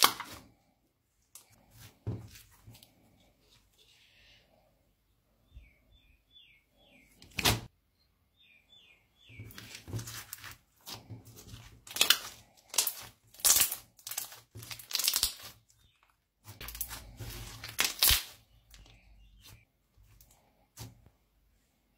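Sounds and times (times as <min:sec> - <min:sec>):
slime squished by hand: 0:09.6 - 0:15.8, 0:16.4 - 0:18.8
slime popping: 0:11.9 - 0:15.6, 0:16.6 - 0:18.4.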